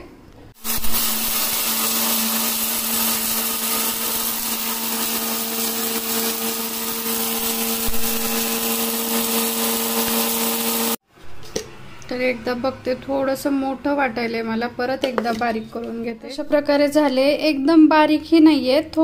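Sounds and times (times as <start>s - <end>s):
mixer grinder motor hum: 0.6s - 11.0s
spices grinding: 0.6s - 11.0s.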